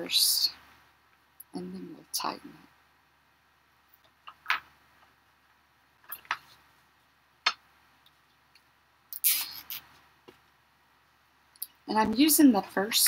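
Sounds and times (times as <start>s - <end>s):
zip ties clicking: 9.1s - 9.9s.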